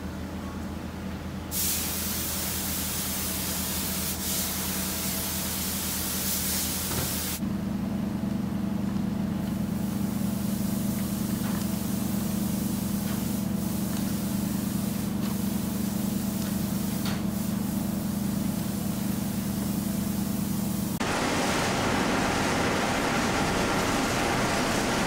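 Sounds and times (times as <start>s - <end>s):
workshop machinery hum: 0.0s - 25.0s
loud hiss: 1.5s - 7.4s.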